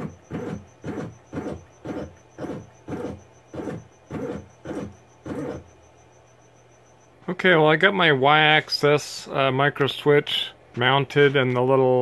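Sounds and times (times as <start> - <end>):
motor whining in short jogs: 0.0 - 7.0.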